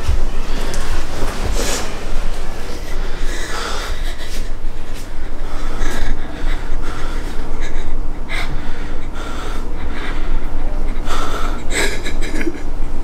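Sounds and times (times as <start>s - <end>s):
steady low hum: 0.0s - 13.0s
woman sobbing: 2.8s - 13.0s.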